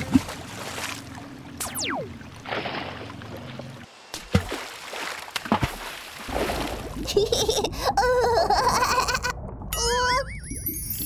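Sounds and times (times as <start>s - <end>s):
water splashing and sloshing: 0.0s - 10.0s
sharp water plops: 4.2s - 7.0s.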